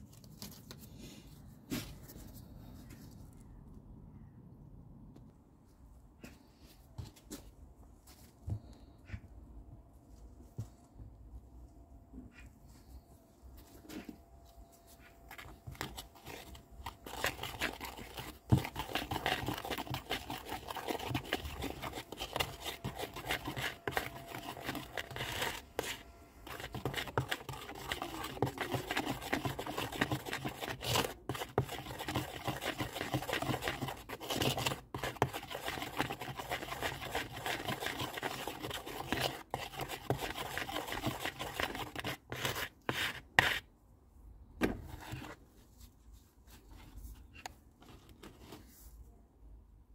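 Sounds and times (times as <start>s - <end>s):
metal spatula scraping plastic bowl: 15.3s - 43.7s.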